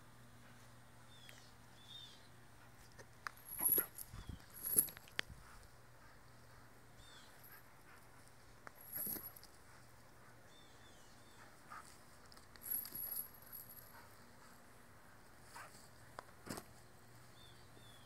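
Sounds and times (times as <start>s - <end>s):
metal dog chain rattling: 3.4s - 5.1s, 8.8s - 9.6s, 12.3s - 14.1s.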